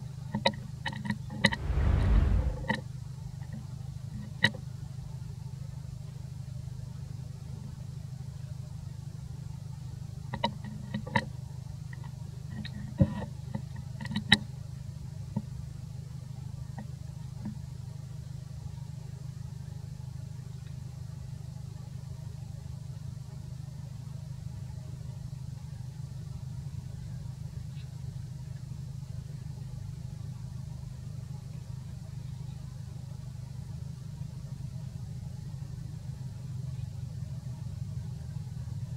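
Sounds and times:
steady low hum: 0:01.4 - 0:02.8.

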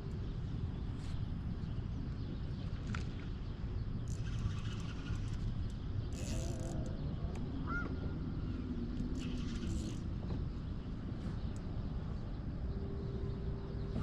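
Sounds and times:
bird chirp: 0:00.0 - 0:14.0
low outdoor rumble: 0:00.0 - 0:14.0
high clicking and hiss: 0:09.0 - 0:10.1.

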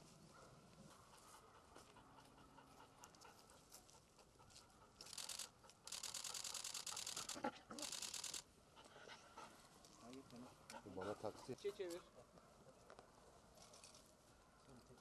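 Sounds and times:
camera shutters clicking: 0:05.0 - 0:08.4.

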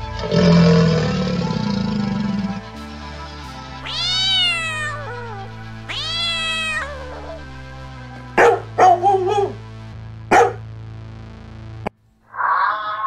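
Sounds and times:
background music: 0:00.0 - 0:11.9
cat meowing: 0:03.8 - 0:07.5, 0:12.3 - 0:13.0
dog barking: 0:08.4 - 0:09.6, 0:10.3 - 0:10.6.

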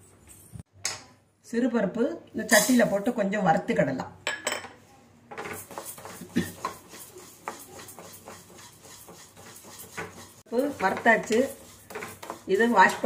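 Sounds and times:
wooden spatula scraping a pan: 0:05.3 - 0:13.0.

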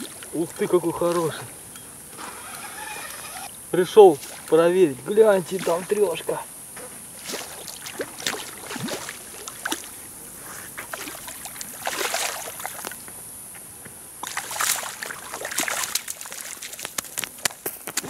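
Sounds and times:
fish thrashing and splashing in water: 0:07.2 - 0:10.0, 0:10.8 - 0:13.0, 0:14.2 - 0:17.6.

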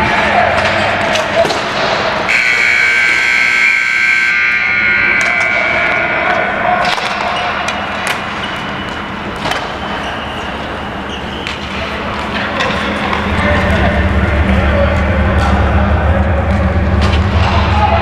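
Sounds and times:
rink background noise: 0:00.0 - 0:18.0
scoreboard buzzer: 0:02.3 - 0:06.0.

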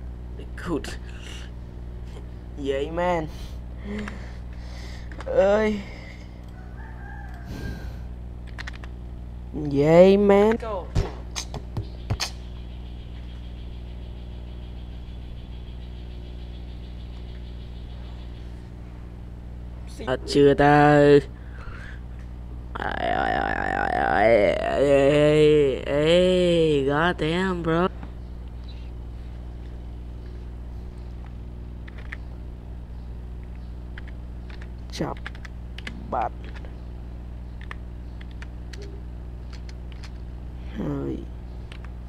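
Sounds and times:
steady low hum: 0:00.0 - 0:42.0
faint keyboard clicks: 0:08.5 - 0:08.9.

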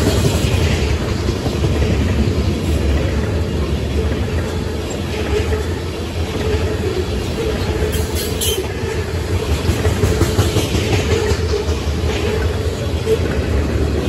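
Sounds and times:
train wheels rumbling on rails: 0:00.0 - 0:14.0
train wheel squeal: 0:03.9 - 0:13.9.

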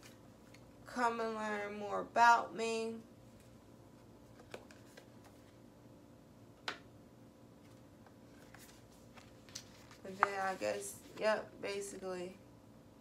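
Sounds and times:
paper sheets rustling: 0:07.6 - 0:11.4.

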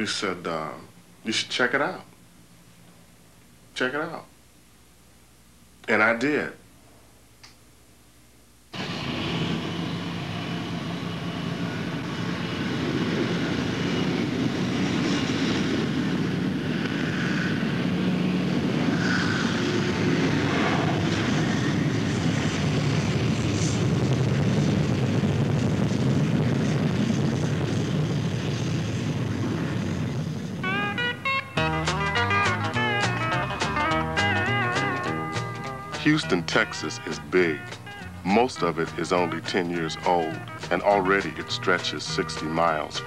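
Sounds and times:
jet engines rushing: 0:08.8 - 0:43.0.

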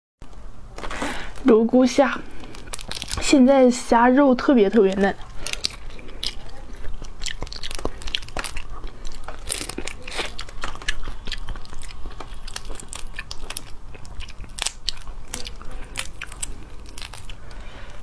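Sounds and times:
prawn shells crackling: 0:00.7 - 0:18.0
mouth sucking and chewing: 0:04.8 - 0:18.0.

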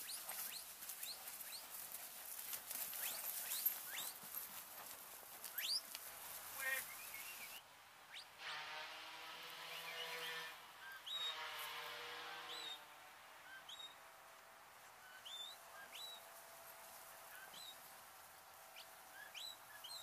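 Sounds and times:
small birds chirping: 0:00.0 - 0:08.3, 0:09.7 - 0:11.4, 0:12.4 - 0:12.8, 0:13.4 - 0:14.0, 0:15.0 - 0:16.3, 0:17.0 - 0:20.0.

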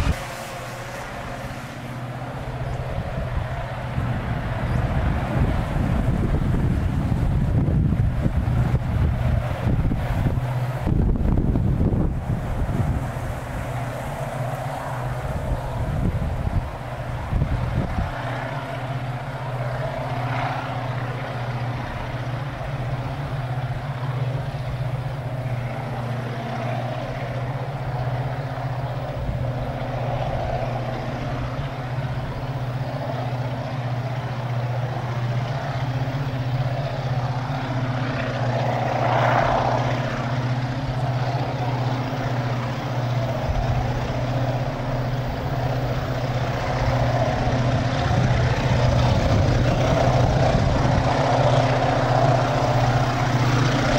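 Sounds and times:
diesel locomotive engine droning: 0:00.0 - 0:53.9.

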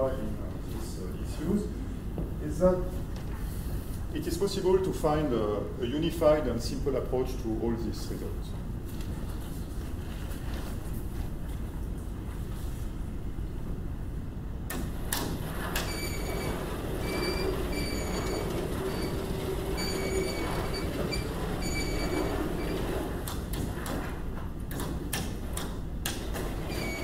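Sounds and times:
sliding chalkboards rumbling and squealing: 0:14.9 - 0:24.6, 0:26.2 - 0:27.0.

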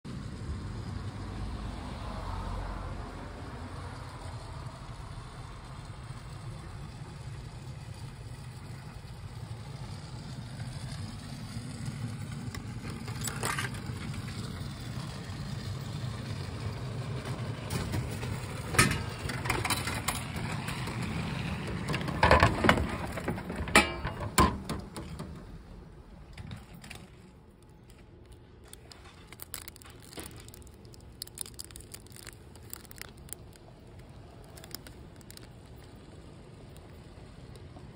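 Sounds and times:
vending machine clicks and knocks: 0:23.5 - 0:25.4
plastic wrapper crinkling: 0:27.2 - 0:37.7.

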